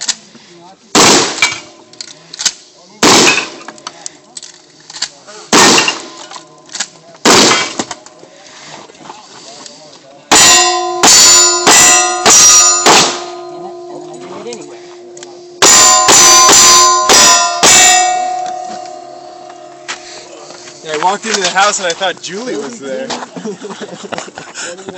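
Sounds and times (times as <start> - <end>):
shotgun blasts: 0.9 - 1.7, 3.0 - 3.7, 5.5 - 6.2, 7.2 - 7.9, 10.3 - 13.4
steel targets clanging: 1.0 - 2.2, 3.0 - 8.0, 10.3 - 22.0
handgun shots: 11.7 - 13.3.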